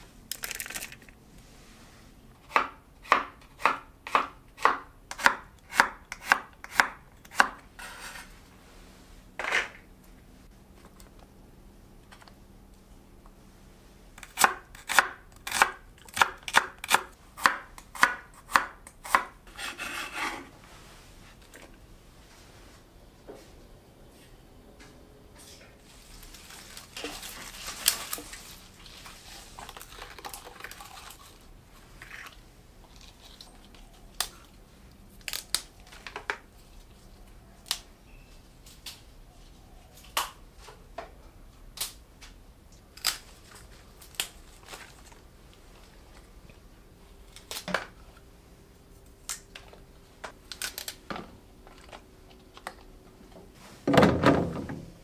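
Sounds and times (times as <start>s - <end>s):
crinkly rustling: 25.8s - 35.2s, 43.2s - 47.7s.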